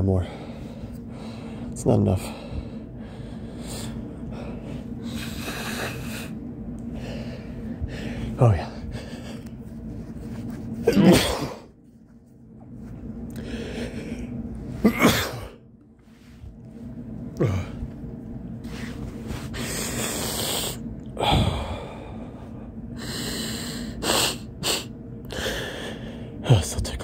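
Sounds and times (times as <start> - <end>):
man sneezing: 10.8 - 11.7, 14.8 - 15.6.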